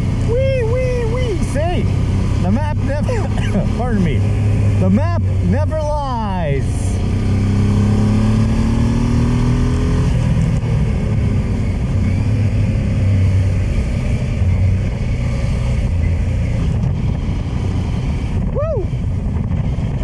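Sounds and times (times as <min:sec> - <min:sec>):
motorcycle engine running: 0:00.0 - 0:20.0
wind noise on microphone: 0:15.8 - 0:20.0.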